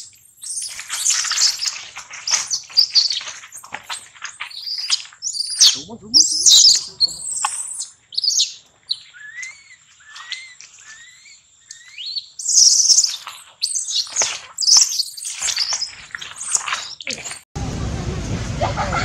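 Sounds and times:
baby monkey squealing: 3.9 - 17.0.

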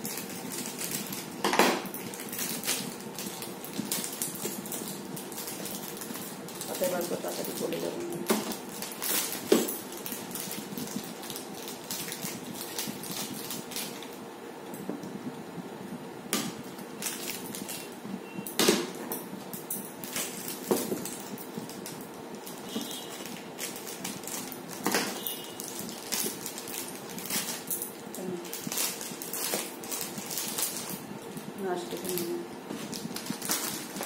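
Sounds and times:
wrapper crinkling: 0.0 - 14.2, 16.8 - 18.0, 18.8 - 34.0
scissors cutting wrapper: 20.0 - 31.0, 31.9 - 34.0.

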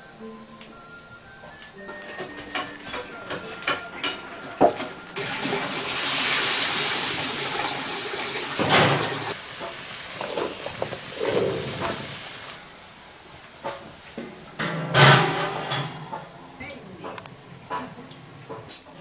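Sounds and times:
steam hissing: 5.2 - 19.0.

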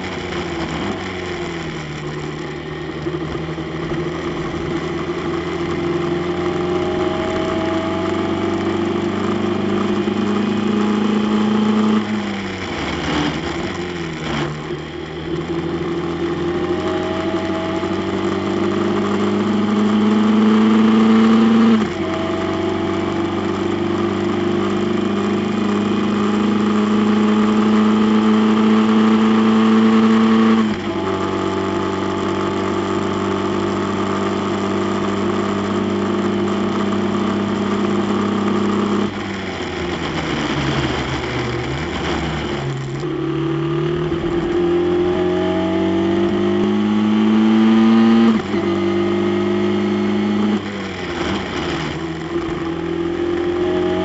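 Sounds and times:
race car engine at full throttle: 0.0 - 54.0
road and wind noise: 0.0 - 54.0.

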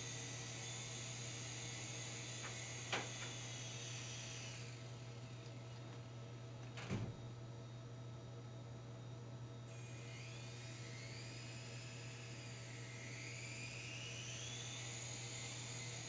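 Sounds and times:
rc helicopter rotor whine: 0.0 - 5.3, 9.7 - 16.0.

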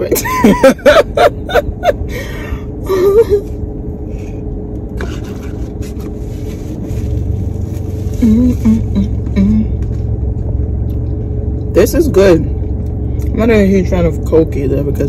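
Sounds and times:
car cabin hum: 0.0 - 15.0
person humming: 8.2 - 9.8.

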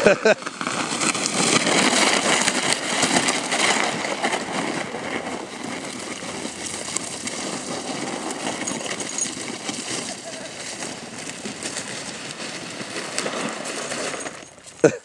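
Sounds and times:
sled runners scraping on ice: 0.0 - 15.0.

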